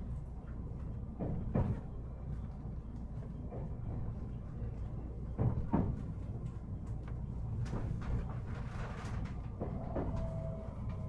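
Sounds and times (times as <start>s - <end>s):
electric train humming: 9.5s - 11.0s.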